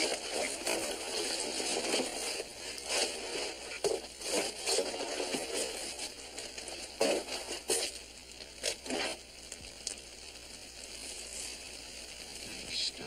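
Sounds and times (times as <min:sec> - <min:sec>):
material rustling and crinkling: 0:00.0 - 0:10.1
steady hiss: 0:00.0 - 0:13.0.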